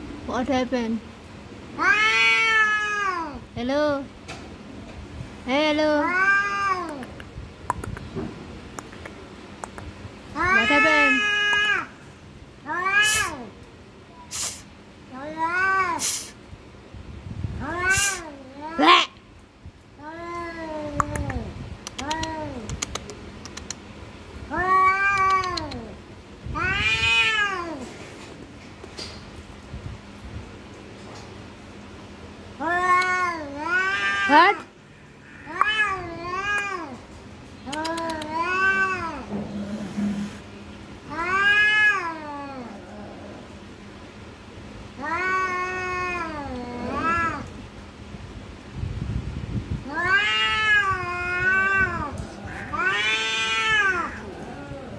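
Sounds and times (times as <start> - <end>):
cats yowling: 1.8 - 3.4, 6.0 - 7.2, 10.4 - 11.9, 12.6 - 13.5, 17.6 - 19.0, 24.5 - 26.0, 26.6 - 27.9, 32.6 - 37.0, 37.6 - 40.3, 41.0 - 43.7, 45.0 - 47.6, 49.8 - 54.9
cats hissing: 12.6 - 13.5, 14.2 - 16.4, 17.6 - 18.9, 24.5 - 26.0, 32.6 - 37.0, 37.6 - 43.8, 45.0 - 47.5, 49.8 - 54.9.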